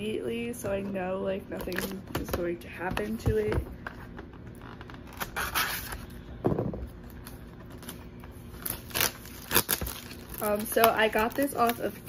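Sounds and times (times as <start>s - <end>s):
plastic bag crinkling: 7.7s - 12.0s.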